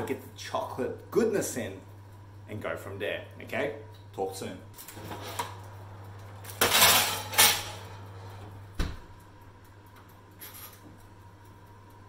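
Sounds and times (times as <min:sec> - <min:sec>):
metal baking tray scraping: 0:04.9 - 0:05.6, 0:06.6 - 0:08.4
oven door shutting: 0:06.5 - 0:09.1.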